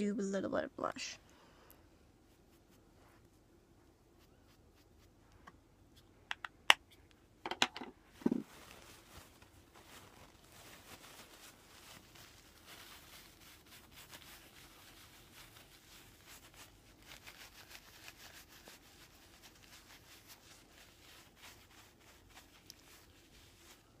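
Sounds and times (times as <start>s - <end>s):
brush rubbing on skin: 2.1s - 5.3s, 8.4s - 24.0s
sharp clicks and taps: 5.4s - 7.9s.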